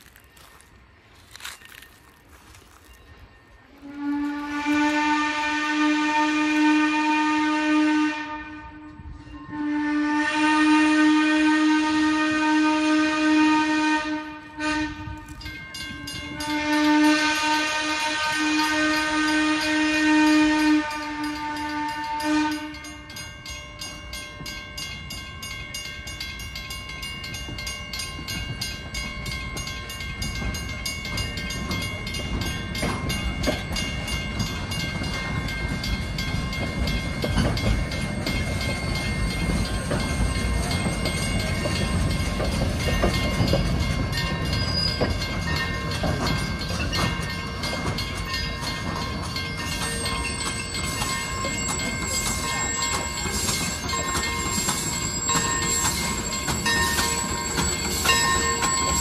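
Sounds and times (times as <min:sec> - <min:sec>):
crossing signal bell ringing: 0:00.0 - 0:05.5, 0:14.2 - 0:59.0
train coaches rumbling over rails: 0:00.0 - 0:59.0
steam locomotive whistle: 0:03.6 - 0:15.3, 0:16.4 - 0:23.0.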